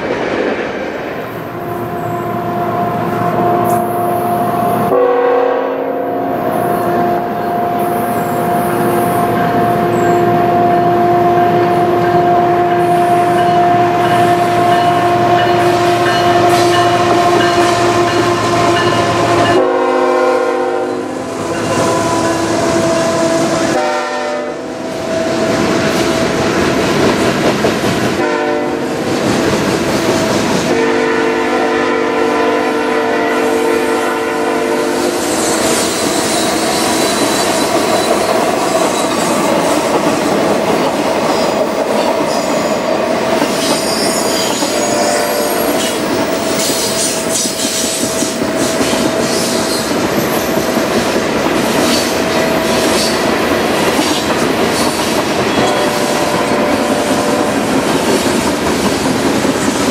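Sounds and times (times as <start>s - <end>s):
train horn blast: 1.7s - 26.4s, 28.2s - 29.1s, 30.6s - 37.6s, 43.8s - 50.4s, 55.3s - 57.8s
train wheels clacking on rails: 24.8s - 30.8s, 35.0s - 59.9s.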